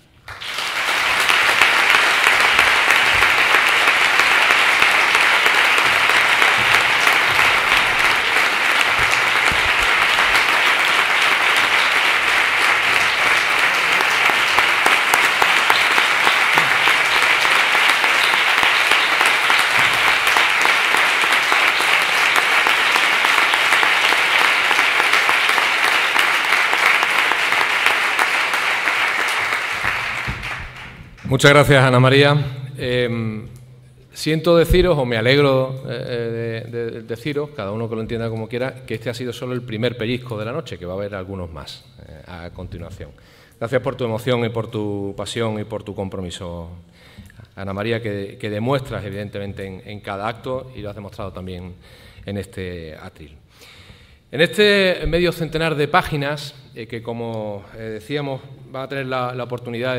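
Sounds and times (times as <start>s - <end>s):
audience applauding: 0.2s - 31.8s.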